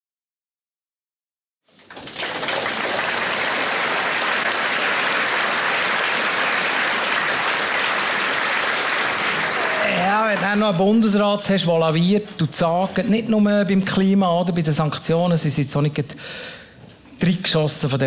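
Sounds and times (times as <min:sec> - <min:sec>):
audience applause: 0:01.7 - 0:10.9.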